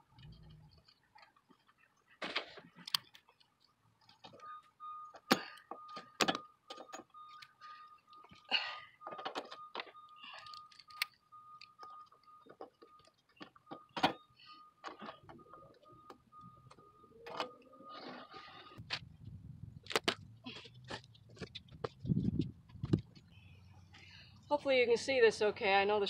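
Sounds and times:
faint steady high tone: 4.2s - 18.8s
metallic clicks and knocks: 5.1s - 8.4s, 9.0s - 14.2s.

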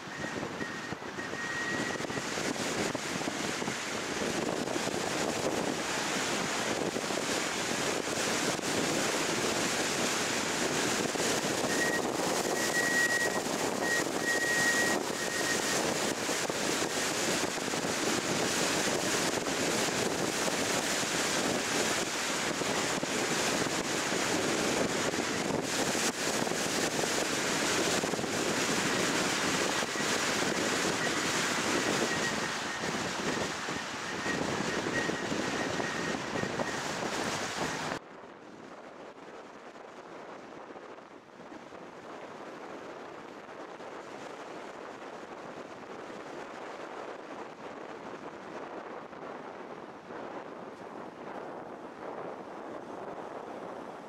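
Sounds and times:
faint high whine: 0.0s - 7.4s, 11.0s - 38.0s
car wind and road noise: 0.0s - 54.0s.

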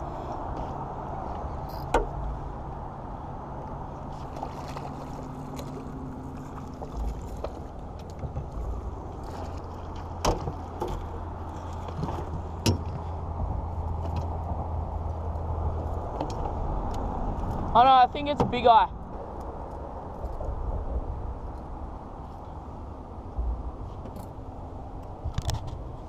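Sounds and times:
steady low hum: 0.0s - 26.0s
water splashing: 3.9s - 13.0s
net and fish knocking on hull: 9.2s - 11.1s.

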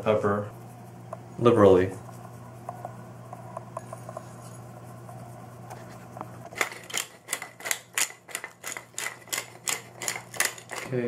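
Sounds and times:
steady low hum: 0.0s - 11.0s
pepper mill grinding: 6.5s - 11.0s.

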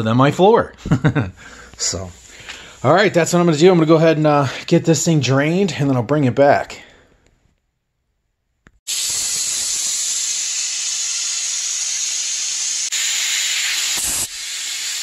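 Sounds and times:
compressed air hissing from drain valve: 1.4s - 3.0s, 8.9s - 15.0s.

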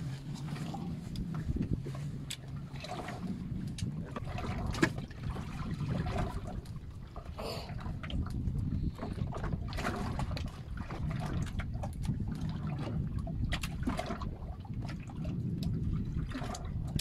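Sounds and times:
steady low rumble: 0.0s - 17.0s
water slapping against boat hull: 0.0s - 17.0s.

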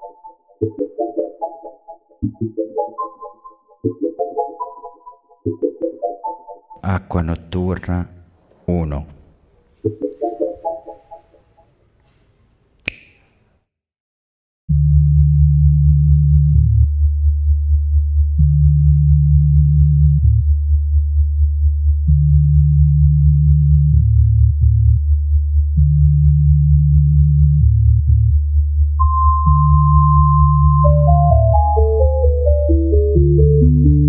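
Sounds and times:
single click: 12.8s - 13.4s
low synthesizer drone: 29.0s - 34.0s
synth note: 29.0s - 34.0s.

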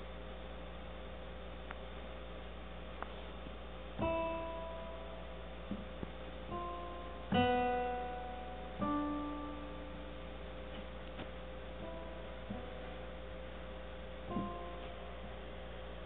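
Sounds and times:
digital piano chords: 3.9s - 16.0s.

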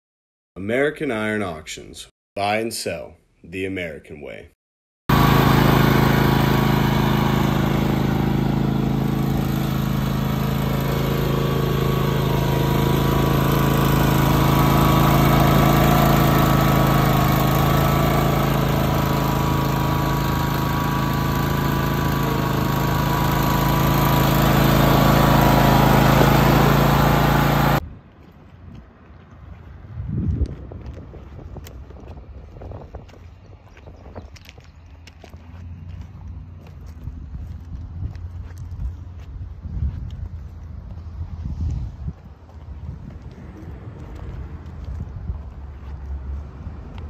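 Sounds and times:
riding lawn mower engine running: 5.1s - 27.8s, 42.4s - 47.0s.

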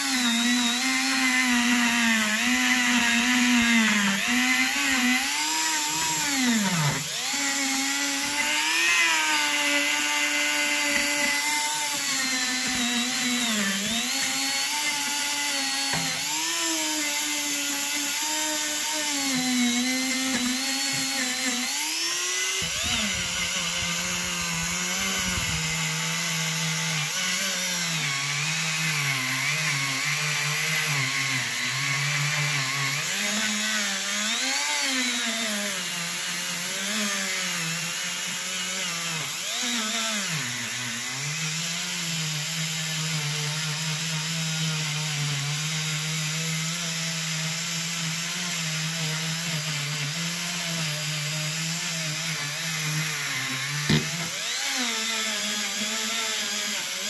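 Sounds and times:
rotary tool whining on metal: 0.0s - 57.0s.

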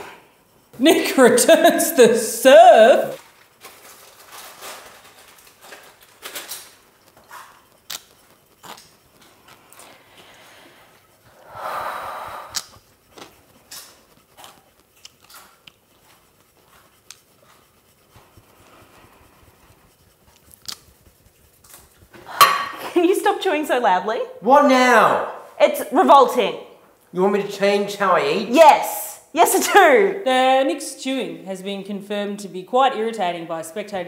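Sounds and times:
person chewing crunchy snack: 5.5s - 20.9s.

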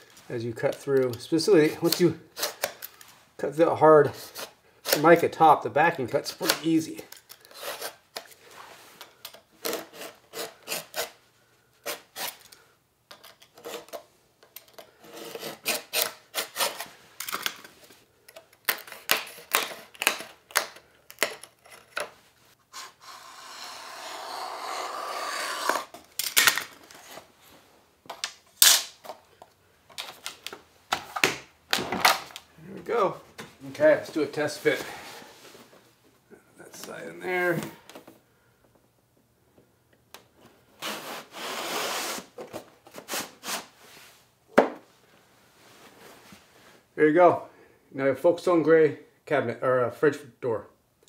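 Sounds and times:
utility knife scraping laminate: 9.6s - 11.2s, 15.0s - 16.9s, 22.7s - 26.0s.

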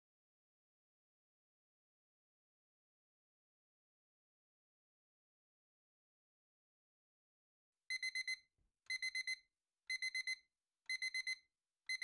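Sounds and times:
digital alarm clock beeping: 7.9s - 12.0s.

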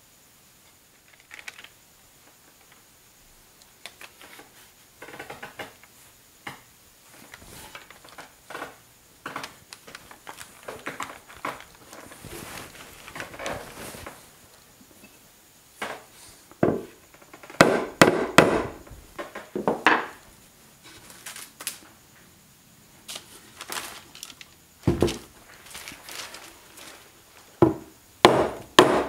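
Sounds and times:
wood scraping: 7.2s - 15.2s.

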